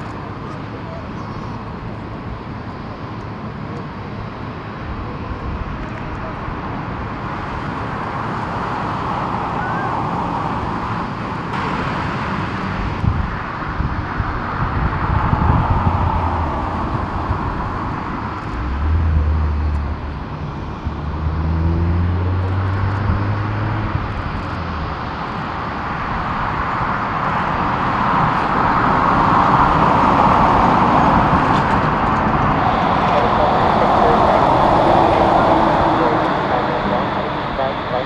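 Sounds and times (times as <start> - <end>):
jet engine roar: 0.0 - 38.0
low hum: 29.6 - 38.0.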